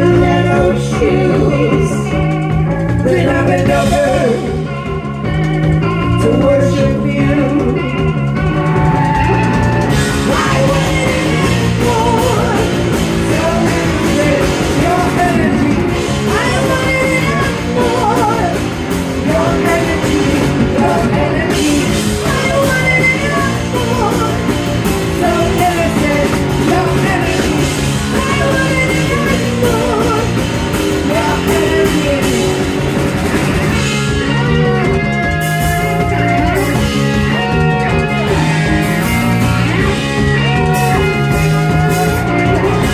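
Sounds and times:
woman singing: 0.0s - 4.9s, 6.0s - 8.2s, 9.9s - 32.9s
bass guitar: 0.0s - 42.9s
drum kit: 0.0s - 42.9s
electric guitars: 0.0s - 42.9s.

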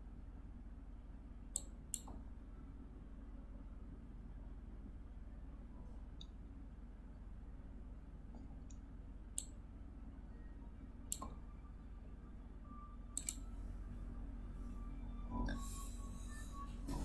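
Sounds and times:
low electrical hum: 0.0s - 17.0s
computer mouse clicking: 13.2s - 13.4s.

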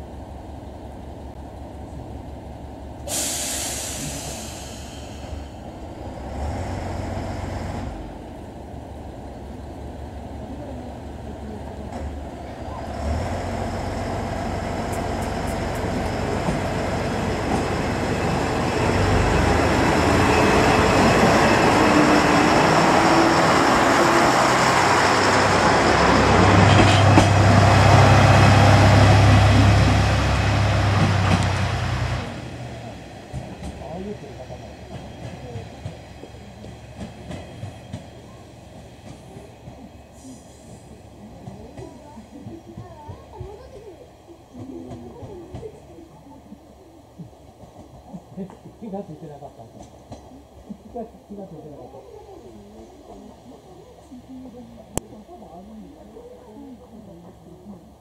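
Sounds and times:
diesel railcar engine: 0.0s - 58.0s
compressed air hiss: 3.1s - 5.5s.

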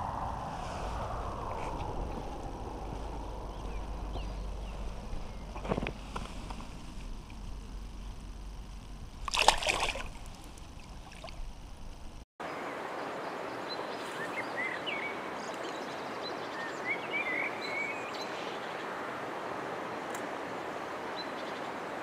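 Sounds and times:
small birds chirping: 3.1s - 6.6s
fish splashing in water: 9.2s - 11.4s.

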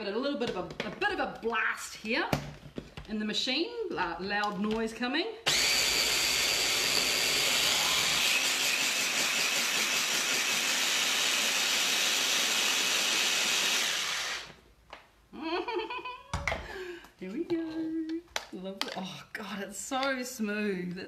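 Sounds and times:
electric blender running: 5.5s - 14.6s.

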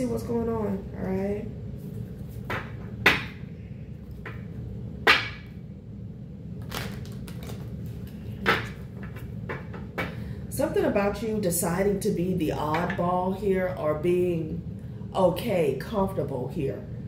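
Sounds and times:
cards slapped on glass: 5.1s - 5.5s.

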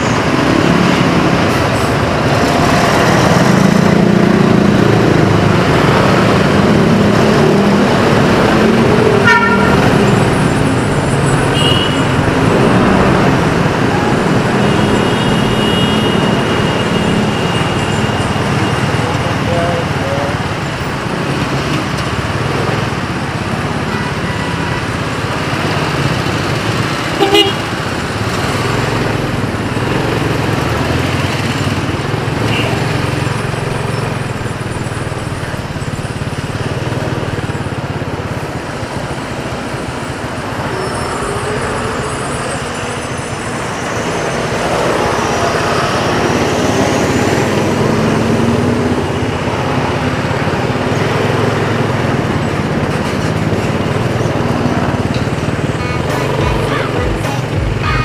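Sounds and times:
city traffic: 0.0s - 58.0s
vehicle horn toot: 9.2s - 10.0s, 11.5s - 12.2s, 14.6s - 18.1s, 27.2s - 27.7s
motorcycle engine running: 25.4s - 38.9s.

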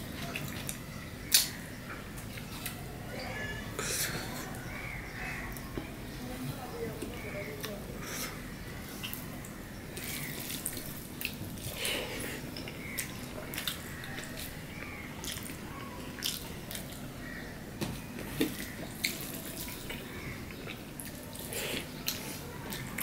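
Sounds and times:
wet chewing and lip smacks: 12.5s - 15.6s.

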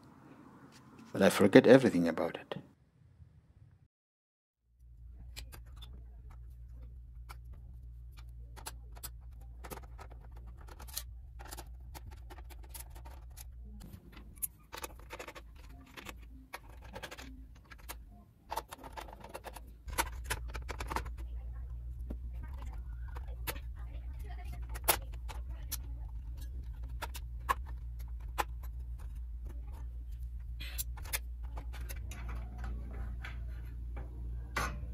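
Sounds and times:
steady low hum: 4.7s - 34.9s
screwdriver and metal parts clicking: 8.1s - 21.4s, 22.0s - 34.9s.

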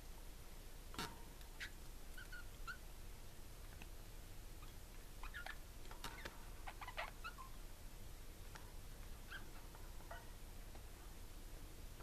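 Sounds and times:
budgies chirping: 4.6s - 5.6s, 6.2s - 7.6s.

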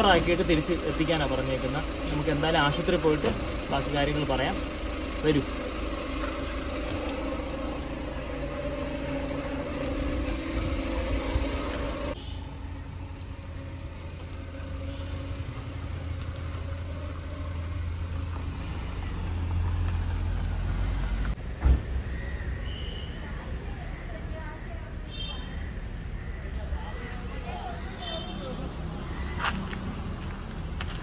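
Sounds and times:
van engine running: 0.0s - 22.4s, 28.8s - 31.0s.

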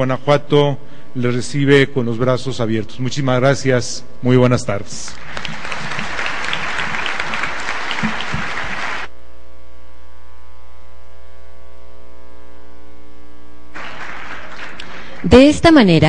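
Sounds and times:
electrical mains hum: 0.0s - 16.0s
audience applause: 5.1s - 9.1s, 13.8s - 15.9s.

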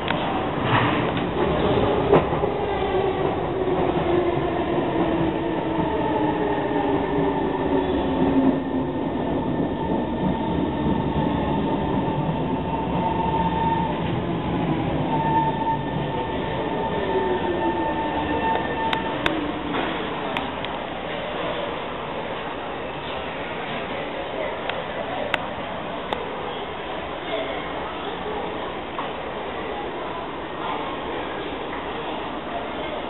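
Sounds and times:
train wheels rumbling on rail: 0.0s - 27.4s.

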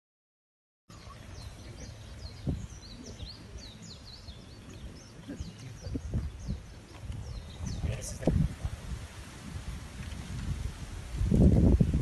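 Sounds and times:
small birds chirping: 0.9s - 8.3s.

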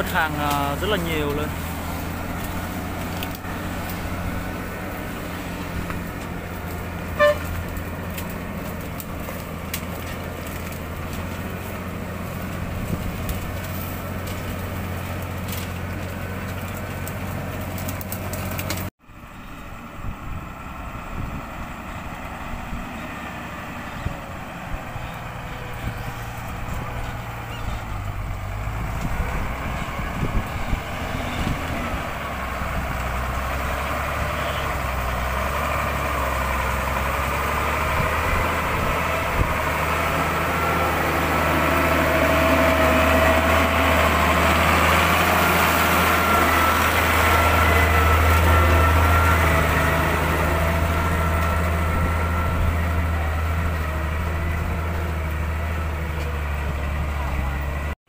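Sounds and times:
truck diesel engine running: 0.0s - 58.0s
truck horn toot: 7.0s - 7.8s, 34.2s - 35.1s.

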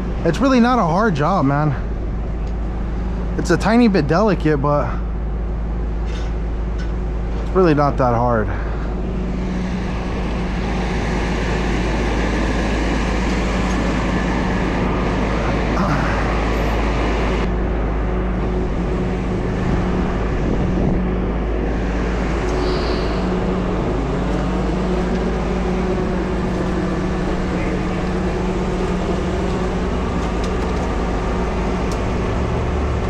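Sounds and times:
tow truck engine running: 0.0s - 33.0s.

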